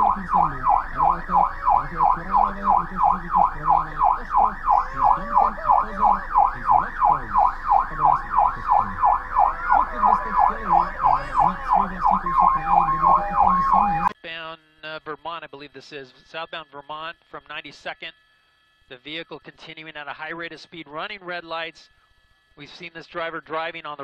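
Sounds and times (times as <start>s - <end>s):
police siren yelping: 0.0s - 14.2s
people talking: 0.0s - 18.1s, 18.9s - 21.9s, 22.6s - 24.0s.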